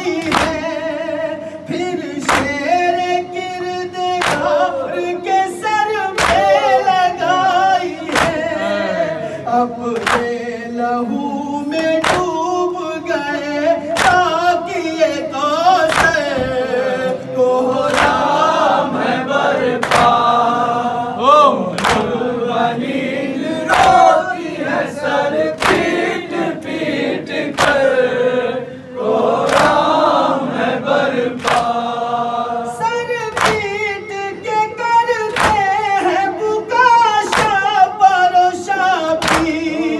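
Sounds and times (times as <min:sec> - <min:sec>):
man singing into microphone: 0:00.0 - 0:18.0, 0:32.7 - 0:39.9
men's voices singing: 0:00.0 - 0:39.9
hands slapping chests: 0:00.2 - 0:00.6, 0:04.2 - 0:04.5, 0:06.2 - 0:06.5, 0:08.1 - 0:08.5, 0:10.0 - 0:10.4, 0:12.0 - 0:12.4, 0:14.0 - 0:14.2, 0:15.9 - 0:16.6, 0:17.9 - 0:18.3, 0:19.8 - 0:20.2, 0:21.8 - 0:22.1, 0:25.4 - 0:26.0, 0:27.5 - 0:27.9, 0:29.4 - 0:29.8, 0:31.4 - 0:31.8, 0:33.3 - 0:33.8, 0:35.3 - 0:35.7, 0:37.3 - 0:37.6, 0:39.2 - 0:39.6.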